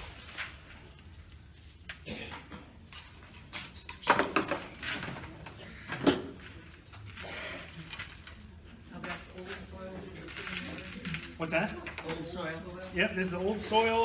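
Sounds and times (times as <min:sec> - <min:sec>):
potting mix rustling and scraping: 0:00.0 - 0:14.0.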